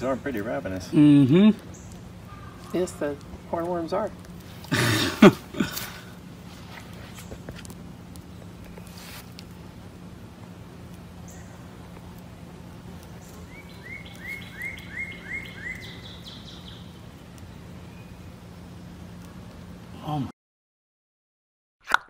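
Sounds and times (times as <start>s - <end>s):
bird chirping: 0.8s - 3.2s, 11.2s - 11.7s, 13.1s - 19.4s.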